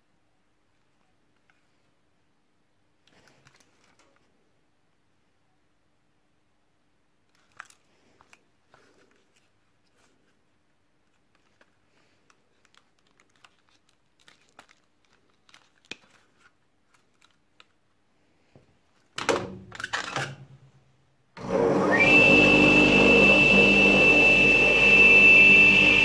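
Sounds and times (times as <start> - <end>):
gloved hands handling cassette player: 11.0 - 18.0
tile saw motor whining: 21.4 - 26.0.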